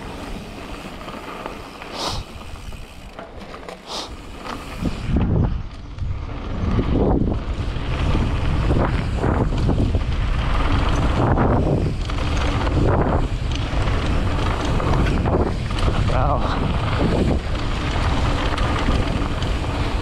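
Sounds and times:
tyres rolling over dirt: 0.0s - 20.0s
wind buffeting microphone: 4.6s - 20.0s.

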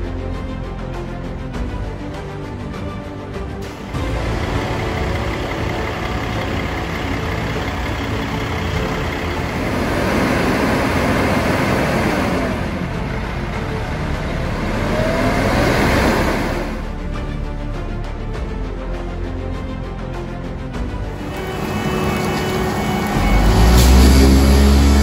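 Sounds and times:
diesel truck engine revving: 3.6s - 17.4s, 21.0s - 25.0s.

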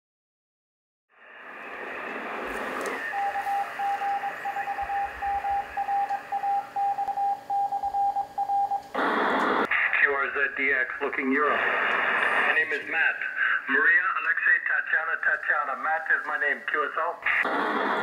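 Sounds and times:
radio static hiss: 1.2s - 5.9s, 8.9s - 18.0s
morse code tone: 3.0s - 8.9s.

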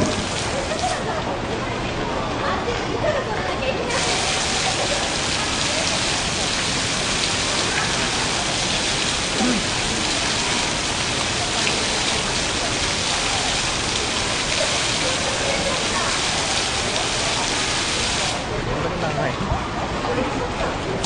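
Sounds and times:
fountain water splashing into pool: 0.0s - 1.5s, 3.9s - 18.6s.

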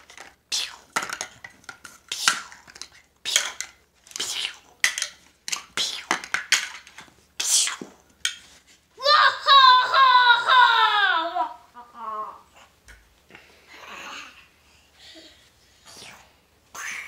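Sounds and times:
plastic toy blocks clattering: 0.0s - 7.1s
child whining cry: 9.0s - 12.5s.

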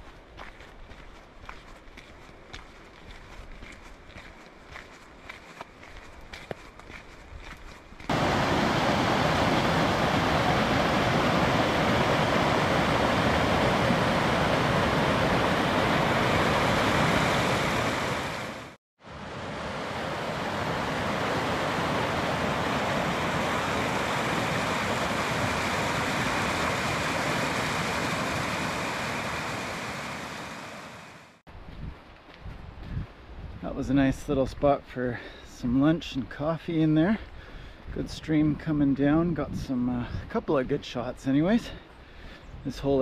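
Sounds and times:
creek rushing over rocks: 8.0s - 31.4s.

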